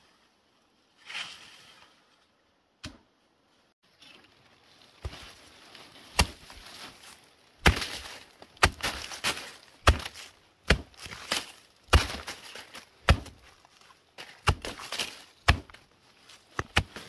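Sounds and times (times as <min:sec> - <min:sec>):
blade chopping strikes: 0:06.2 - 0:06.4, 0:07.6 - 0:12.4, 0:13.0 - 0:13.4, 0:14.4 - 0:15.8.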